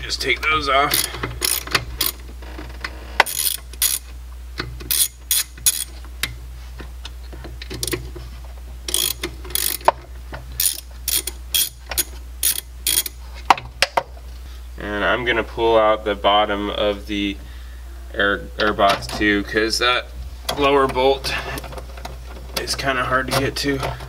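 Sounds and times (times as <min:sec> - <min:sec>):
hand ratchet clicking: 0:00.8 - 0:02.2, 0:03.2 - 0:04.0, 0:04.6 - 0:06.3, 0:08.9 - 0:10.0, 0:10.6 - 0:13.2.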